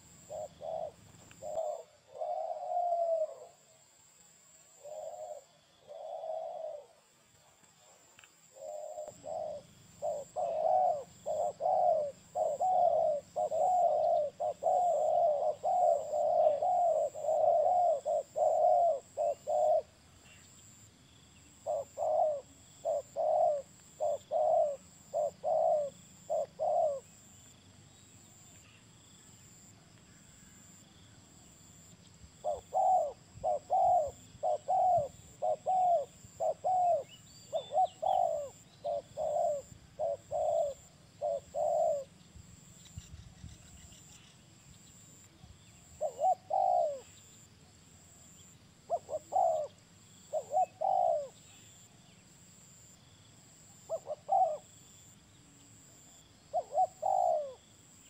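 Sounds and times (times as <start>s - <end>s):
doves cooing: 0.0s - 3.7s, 4.7s - 7.1s, 7.8s - 20.0s, 21.5s - 27.3s, 32.4s - 42.2s, 45.9s - 47.4s, 48.9s - 51.8s, 53.7s - 55.1s, 56.5s - 57.6s.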